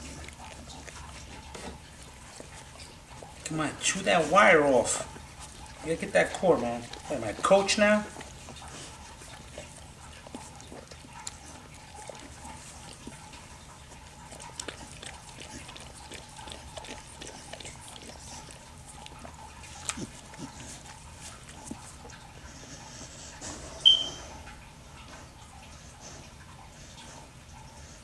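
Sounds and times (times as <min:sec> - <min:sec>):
dog licking and chewing: 0:00.0 - 0:28.0
low steady hum: 0:00.0 - 0:28.0.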